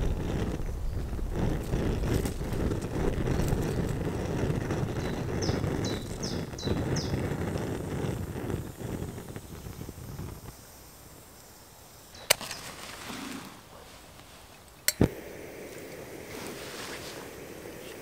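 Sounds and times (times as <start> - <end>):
low rumbling noise: 0.0 - 10.4
bird chirping: 4.9 - 7.2.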